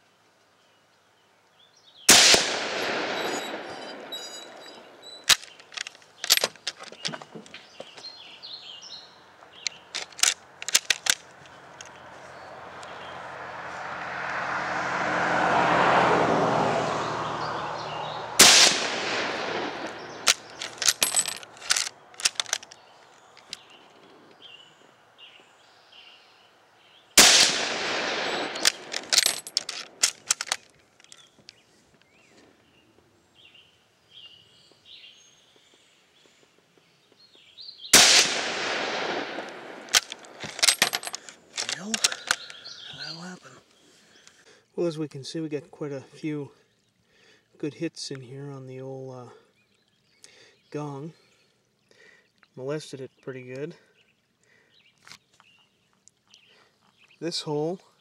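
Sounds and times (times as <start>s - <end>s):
rifle shots: 2.1s - 5.5s, 18.4s - 21.8s, 27.2s - 30.5s, 37.9s - 41.1s
rifle bolt clicks and knocks: 5.2s - 8.0s, 9.6s - 12.0s, 19.8s - 22.8s, 28.4s - 31.5s, 39.3s - 42.6s.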